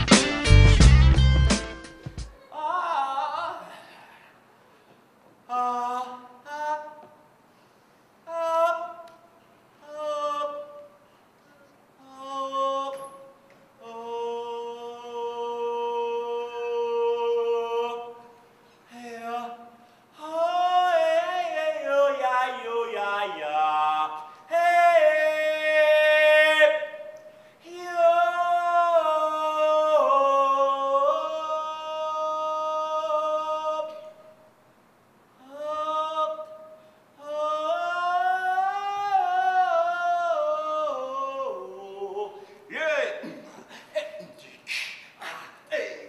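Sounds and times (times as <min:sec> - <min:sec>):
man singing long note: 0:08.3 - 0:18.3, 0:18.9 - 0:34.3.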